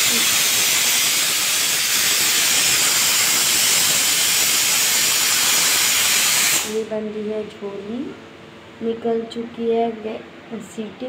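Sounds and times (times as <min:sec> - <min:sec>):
pressure cooker hissing steam: 0:00.0 - 0:06.8.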